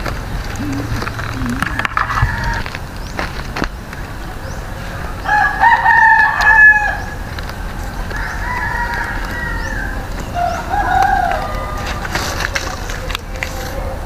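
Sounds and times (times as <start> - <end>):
rooster crowing: 0.6 - 2.7, 5.2 - 7.2, 8.0 - 12.1.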